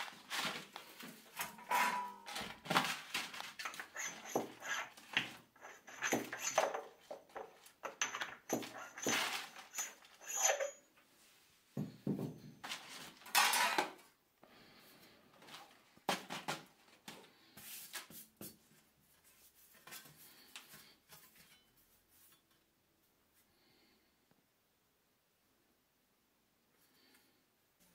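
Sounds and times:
metal sheet rattling: 0.1s - 4.5s.

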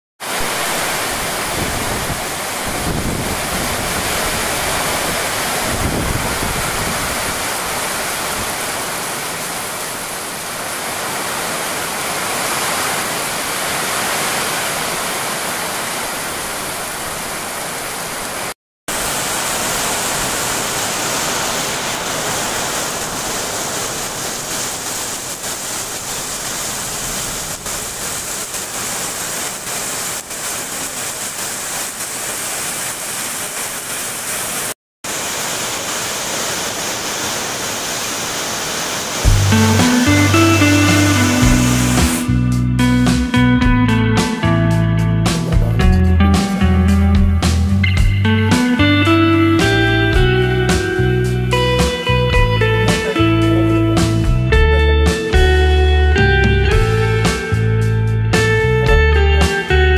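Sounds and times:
heavy rain pouring: 0.2s - 43.3s, 48.5s - 59.9s.

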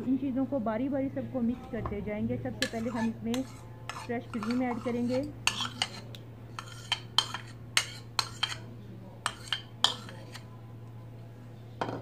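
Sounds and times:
metal spoon clinking on bowls: 2.6s - 10.5s.

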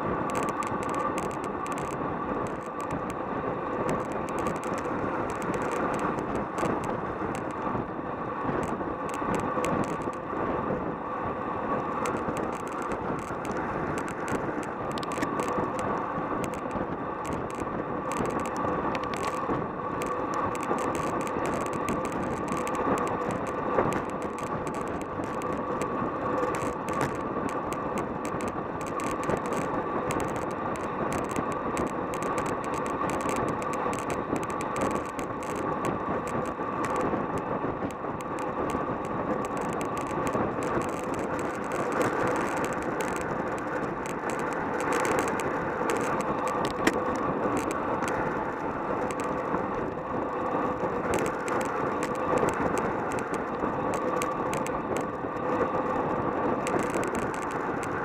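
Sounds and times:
bike tyres on asphalt: 0.0s - 58.0s
wind rushing over microphone: 0.0s - 58.0s
light rattling clicks: 0.3s - 3.2s, 3.8s - 7.7s, 12.0s - 48.2s.

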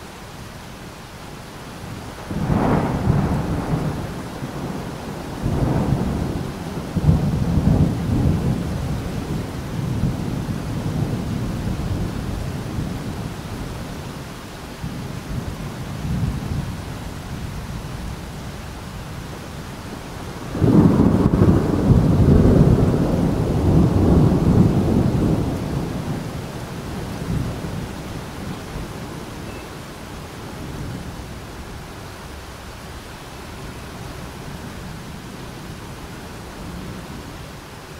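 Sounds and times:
thunder rumbling: 2.2s - 13.8s, 14.8s - 29.6s
loud thunder clap: 20.5s - 26.2s.

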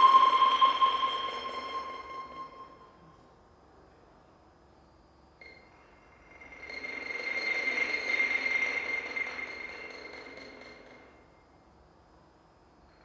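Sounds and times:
soft swell of sound: 0.0s - 3.0s
high ringing tone: 0.0s - 3.1s.

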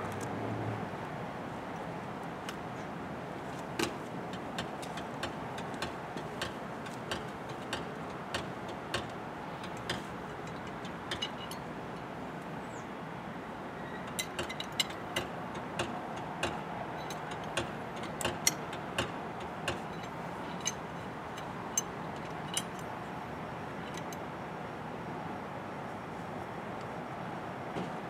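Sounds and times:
background traffic hum: 0.0s - 28.0s
sharp metallic clicks and taps: 3.6s - 11.7s, 14.1s - 22.9s.

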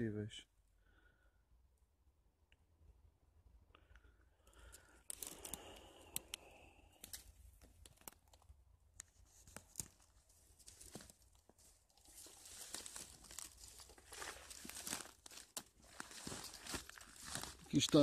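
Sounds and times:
dry undergrowth crackling and rustling: 5.1s - 6.4s, 9.2s - 18.0s.

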